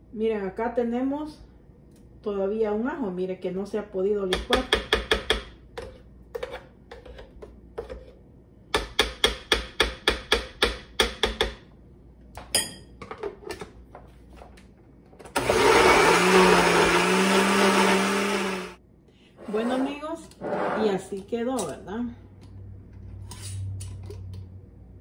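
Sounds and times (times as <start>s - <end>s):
electric blender running: 15.3s - 18.8s.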